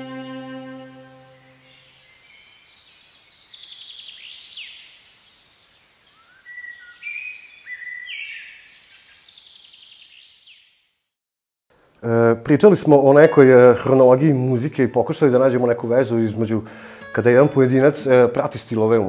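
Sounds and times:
held music chord: 0:00.0 - 0:01.8, 0:16.8 - 0:18.7
songbirds singing: 0:00.0 - 0:10.8.

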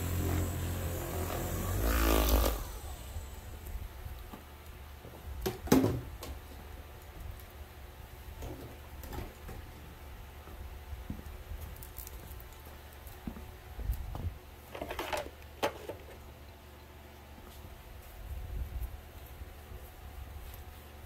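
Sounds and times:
electric polisher running: 0:00.0 - 0:03.7.

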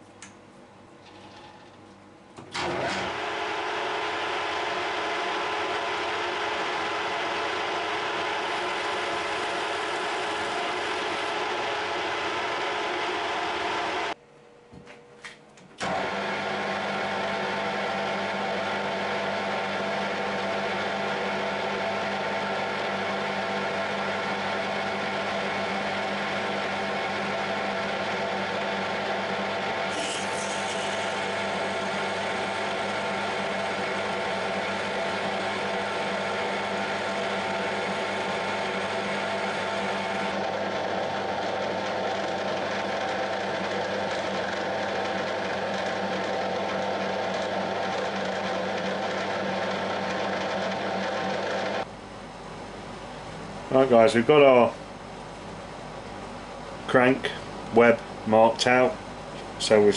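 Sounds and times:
metal lathe running: 0:02.5 - 0:14.2, 0:15.8 - 0:51.9.

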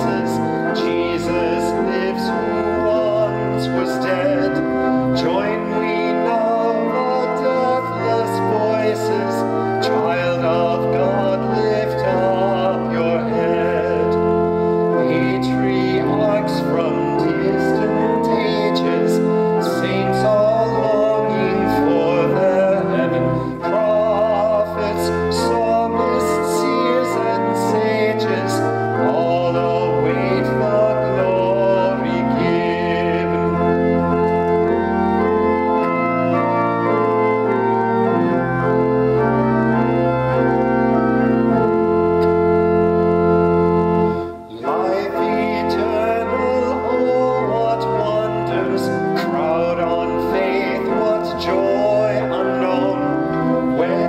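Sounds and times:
organ playing hymn: 0:00.0 - 0:54.0
voices singing: 0:15.0 - 0:33.6, 0:44.5 - 0:54.0.

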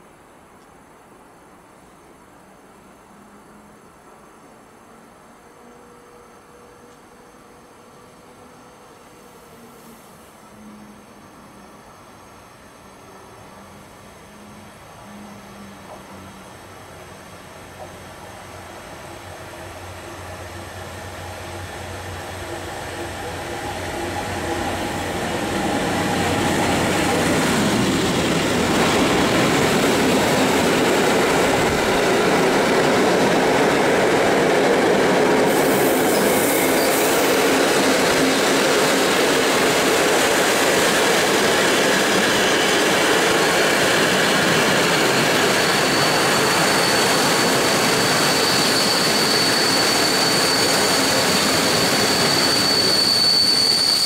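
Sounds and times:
train wheels rumbling on rail: 0:15.0 - 0:54.0
high brake squeal: 0:35.4 - 0:39.7, 0:41.9 - 0:54.0.

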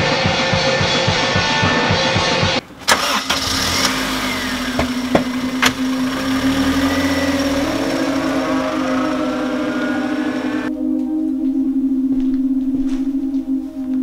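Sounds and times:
car engine starting and idling: 0:02.6 - 0:10.7.

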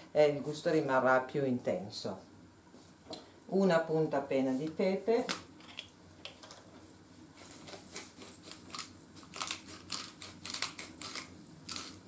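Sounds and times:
pepper mill grinding clicks: 0:08.6 - 0:12.0.

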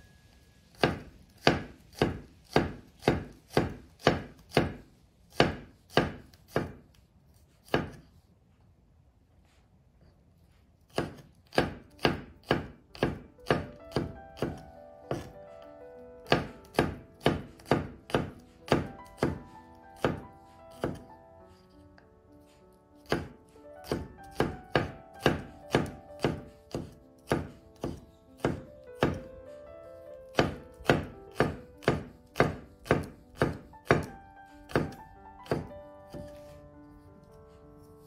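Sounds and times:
knife chopping on wooden board: 0:00.7 - 0:06.9, 0:07.6 - 0:08.1, 0:10.8 - 0:15.4, 0:16.2 - 0:21.1, 0:22.5 - 0:29.3, 0:30.3 - 0:36.6
background music: 0:12.1 - 0:38.0.

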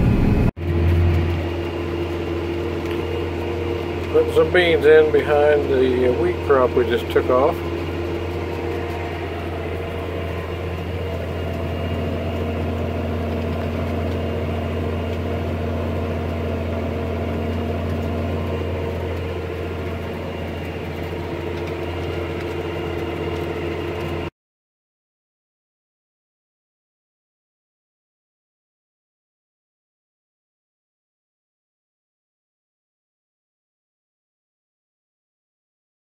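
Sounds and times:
tractor diesel engine drone: 0:00.0 - 0:24.3.

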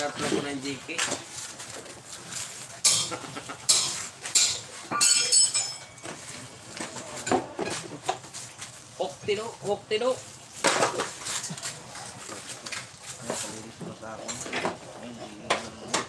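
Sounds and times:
metal tools clinking: 0:02.8 - 0:07.8.

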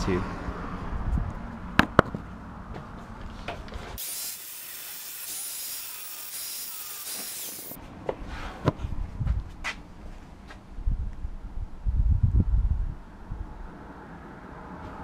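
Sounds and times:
angle grinder grinding steel: 0:04.0 - 0:07.8.

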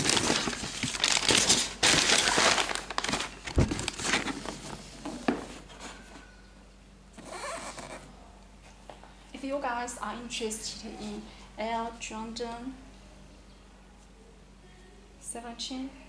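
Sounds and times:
rustling crinkling handling noise: 0:00.0 - 0:06.0.

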